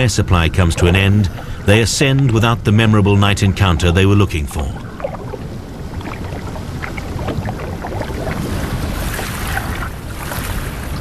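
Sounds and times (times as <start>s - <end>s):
sea water washing: 0.0s - 11.0s.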